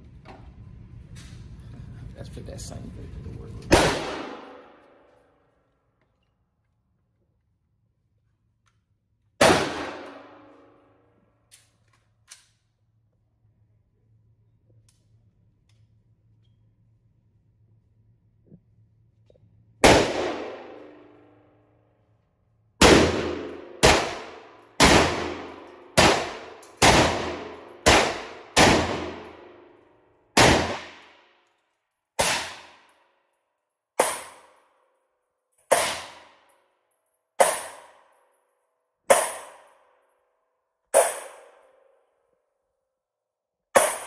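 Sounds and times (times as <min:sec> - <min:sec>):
gunshots ringing indoors: 0:03.7 - 0:05.4, 0:09.4 - 0:11.5, 0:19.8 - 0:21.8, 0:22.8 - 0:33.4, 0:34.0 - 0:35.0, 0:35.7 - 0:36.6, 0:37.4 - 0:38.4, 0:39.1 - 0:40.1, 0:40.9 - 0:42.2, 0:43.7 - 0:44.0.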